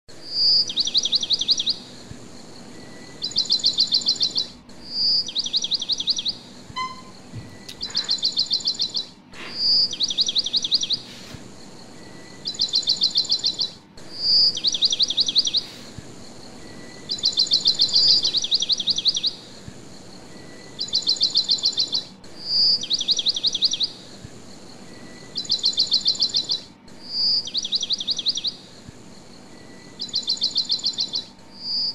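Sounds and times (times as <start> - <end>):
bird song trill: 0.1 - 31.9.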